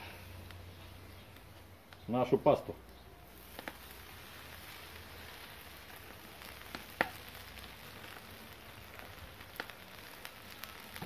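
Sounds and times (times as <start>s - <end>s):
food sizzling in pan: 3.2s - 11.0s.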